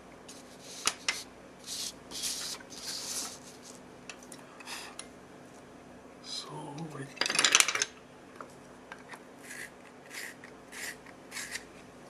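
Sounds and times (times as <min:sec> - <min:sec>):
pencil scratching on paper: 0:00.3 - 0:03.6, 0:09.4 - 0:11.7.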